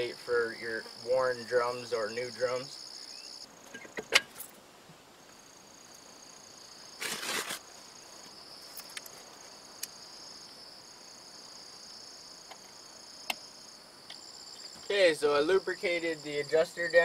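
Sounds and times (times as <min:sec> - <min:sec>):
crickets chirping: 0:00.0 - 0:17.0
metal scrape: 0:07.0 - 0:07.6.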